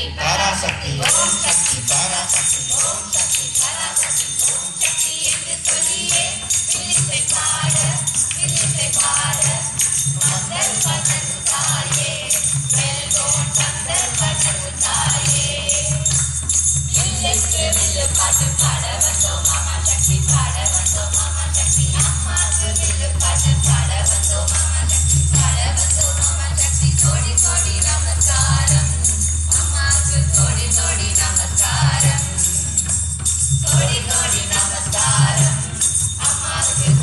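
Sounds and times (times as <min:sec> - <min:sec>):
voices singing together: 0:00.0 - 0:37.0
jingling bells: 0:00.2 - 0:37.0.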